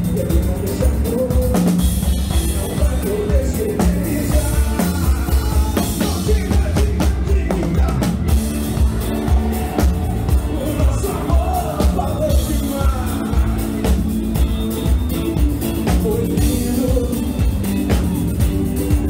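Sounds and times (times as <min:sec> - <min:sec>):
drum kit beat: 0:00.0 - 0:19.0
live band playing: 0:00.0 - 0:19.0.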